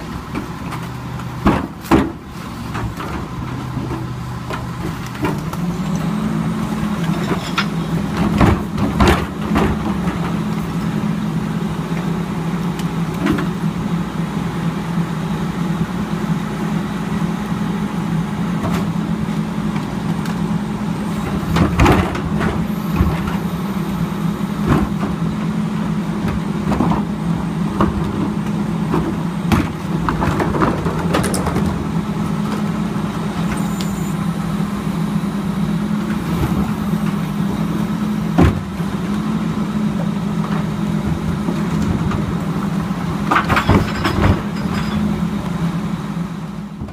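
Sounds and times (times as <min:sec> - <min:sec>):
carts banging against hopper: 0:00.0 - 0:05.7, 0:07.1 - 0:10.5, 0:27.8 - 0:32.7, 0:43.2 - 0:45.2
garbage truck diesel hum: 0:00.0 - 0:46.9.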